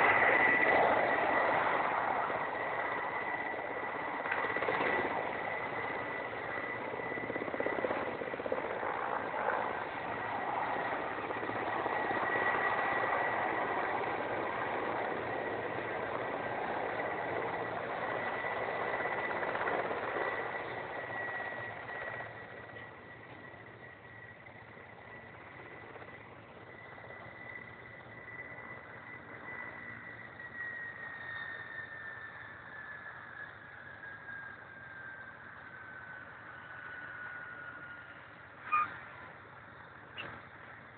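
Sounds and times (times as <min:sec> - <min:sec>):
helicopter rotor and turbine noise: 0:00.0 - 0:40.9
thin high whine: 0:00.0 - 0:40.9.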